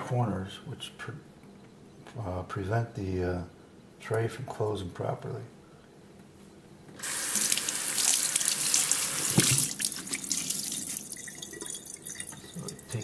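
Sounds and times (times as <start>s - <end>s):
water running from a tap: 7.0s - 13.0s.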